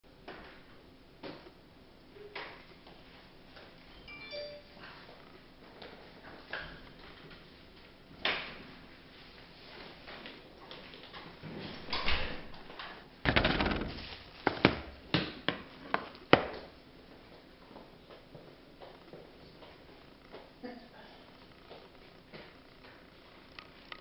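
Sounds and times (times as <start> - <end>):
rustling: 13.3 - 14.7
sharp clicks and knocks: 13.3 - 14.9
handling noise: 13.3 - 16.5.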